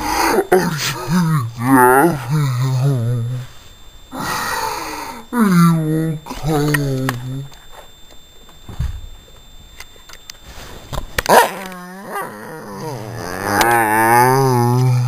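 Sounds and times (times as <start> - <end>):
small dog growling: 11.5 - 15.0.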